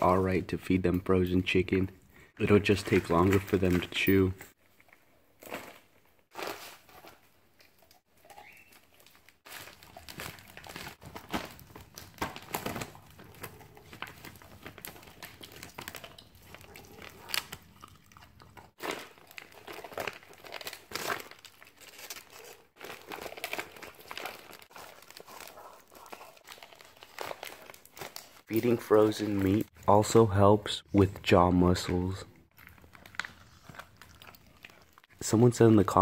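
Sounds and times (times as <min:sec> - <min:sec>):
plastic bag crinkling: 0:02.4 - 0:29.8, 0:32.5 - 0:35.4
dog crunching frozen chicken: 0:04.8 - 0:29.8, 0:32.5 - 0:35.8.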